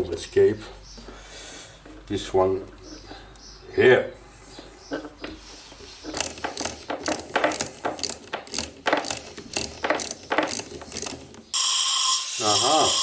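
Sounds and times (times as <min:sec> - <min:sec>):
plastic tubing clicking and creaking: 0:04.9 - 0:11.5.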